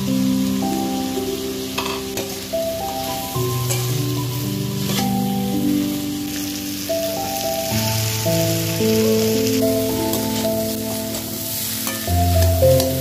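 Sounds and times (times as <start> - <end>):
slow background music: 0.0 - 13.0
vegetables sizzling in a hot pan: 0.0 - 13.0
stirring scrapes in pan: 4.8 - 5.2.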